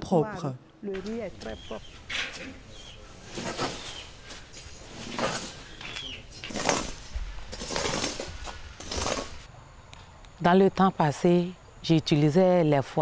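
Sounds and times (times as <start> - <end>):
rake scraping rice grains: 2.0 - 9.5.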